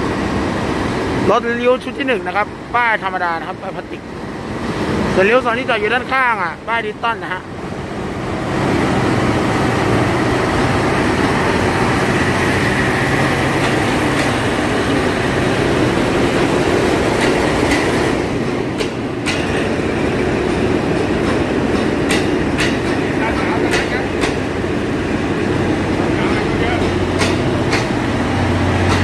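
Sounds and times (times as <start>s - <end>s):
diesel train engines running: 0.0s - 29.0s
wheels clicking over rail joints: 20.4s - 24.5s, 26.2s - 28.1s, 28.8s - 29.0s.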